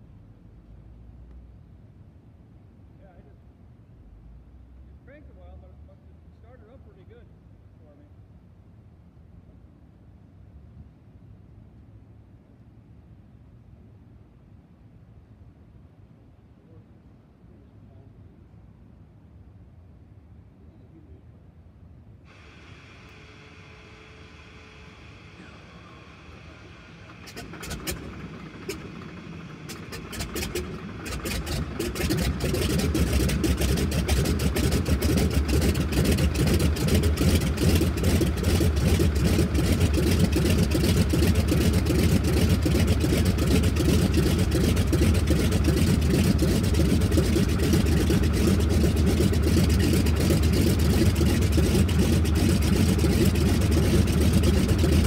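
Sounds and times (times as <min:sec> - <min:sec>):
radial aircraft engine starting: 0:22.3 - 0:55.0.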